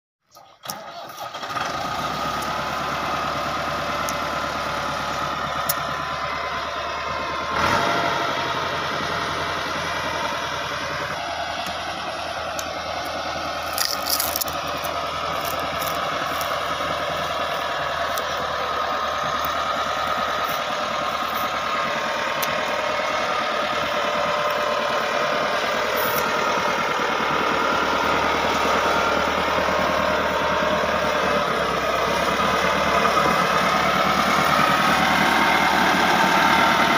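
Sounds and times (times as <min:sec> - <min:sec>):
tractor diesel engine running: 0:00.2 - 0:36.9.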